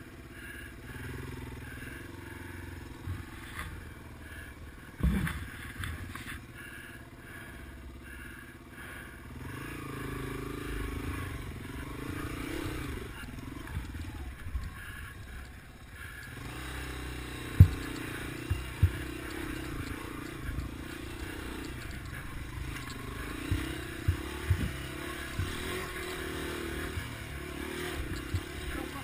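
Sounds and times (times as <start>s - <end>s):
motorcycle engine running: 0.0s - 29.0s
motorcycle knocking over rocks: 4.9s - 6.3s, 17.3s - 29.0s.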